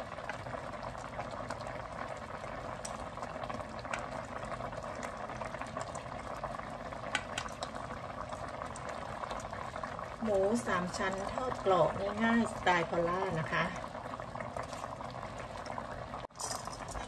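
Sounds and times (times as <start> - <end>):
pot boiling and bubbling: 0.0 - 17.0
food plopping into pot: 7.0 - 7.8.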